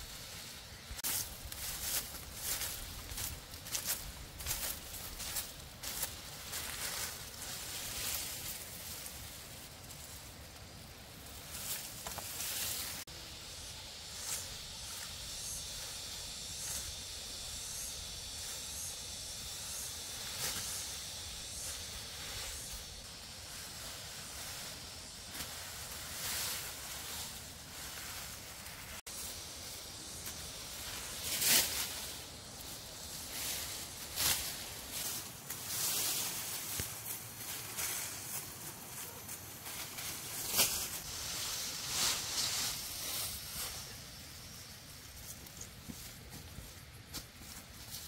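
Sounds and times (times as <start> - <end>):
steady high hiss: 0.0 - 48.0
rustles and scrapes: 18.2 - 48.0.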